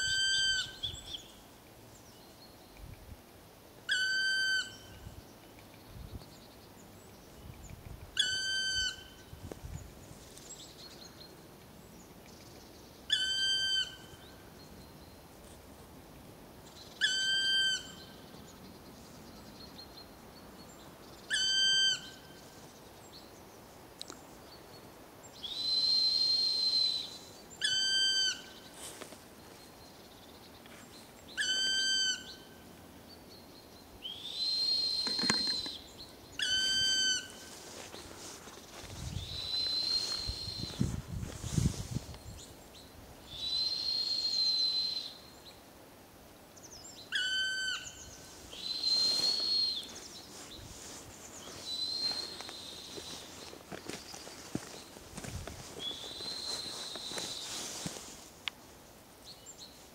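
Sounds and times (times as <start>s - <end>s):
woodpecker calling: 34.1s - 37.5s.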